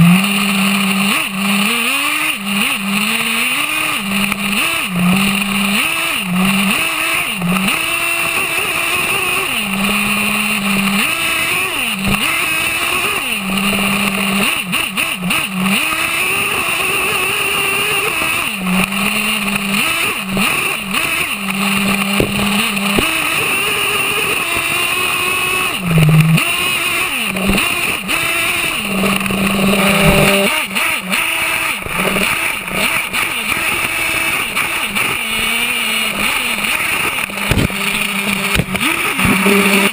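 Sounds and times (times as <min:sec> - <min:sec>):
model truck engine revving: 0:00.0 - 0:39.9.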